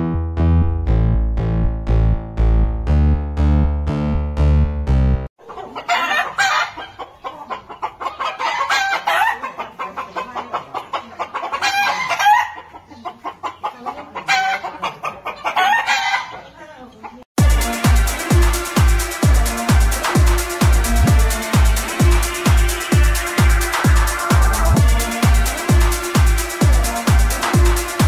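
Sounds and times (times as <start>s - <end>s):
electronic keyboard tune: 0.0s - 5.3s, 17.4s - 28.0s
chickens clucking: 5.4s - 17.7s, 18.5s - 28.0s.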